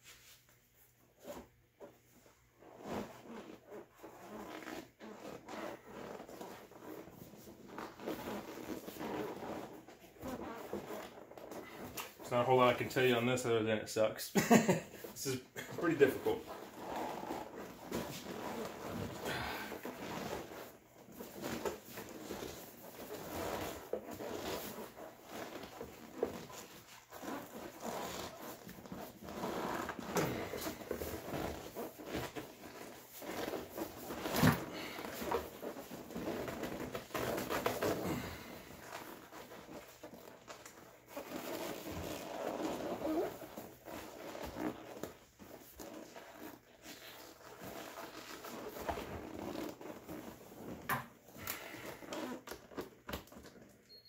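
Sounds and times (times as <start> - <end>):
seat cover rustling and rubbing: 16.1 - 52.8.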